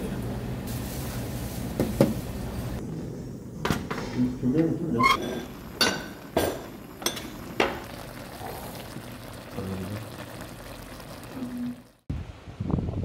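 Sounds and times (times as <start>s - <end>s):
food hissing on stove: 0.6s - 2.6s.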